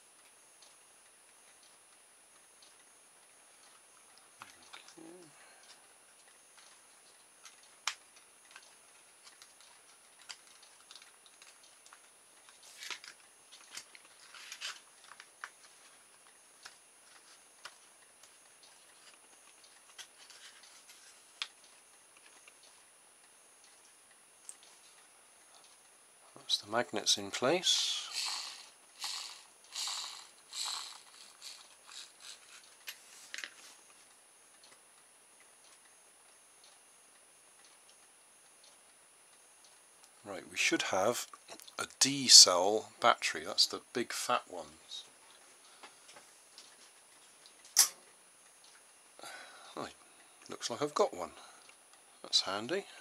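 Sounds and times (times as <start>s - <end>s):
plastic parts rattling and scraping: 12.6s - 16.0s.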